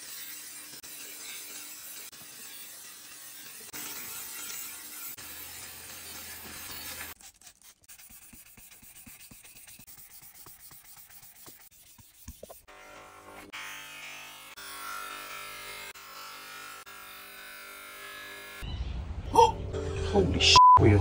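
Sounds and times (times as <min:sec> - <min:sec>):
blade stroked across whetstone: 0:00.0 - 0:13.5.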